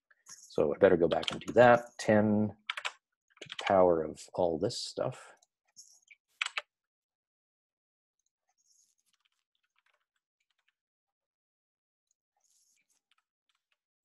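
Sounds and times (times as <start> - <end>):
soft computer keyboard typing: 0.3 - 1.9, 2.6 - 3.8, 6.4 - 6.6.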